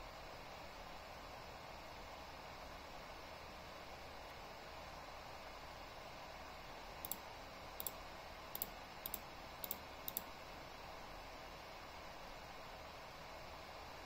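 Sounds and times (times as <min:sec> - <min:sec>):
low room hiss: 0:00.0 - 0:14.0
computer mouse double clicks: 0:07.8 - 0:10.3.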